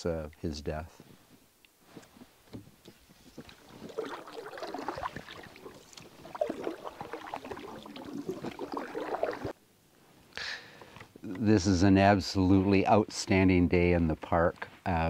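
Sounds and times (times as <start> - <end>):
canoe paddle splashing water: 2.8 - 9.6
water dripping off paddle: 3.2 - 9.5.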